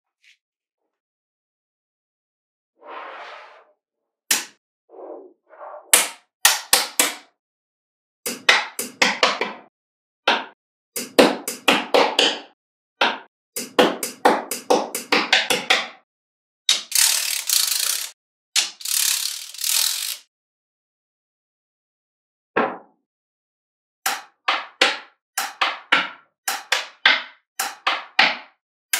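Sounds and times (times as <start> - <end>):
magnetic balls clicking together: 16.8 - 20.2.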